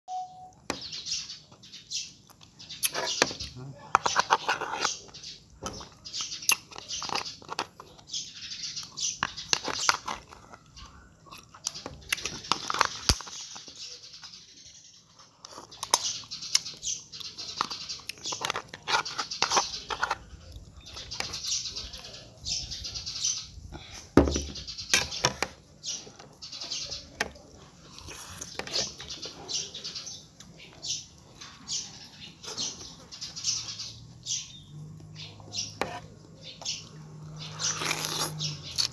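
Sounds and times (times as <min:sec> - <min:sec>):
person chewing: 0:08.8 - 0:13.6, 0:27.7 - 0:29.3, 0:36.8 - 0:38.9
lip-smacking and sucking: 0:37.5 - 0:38.9.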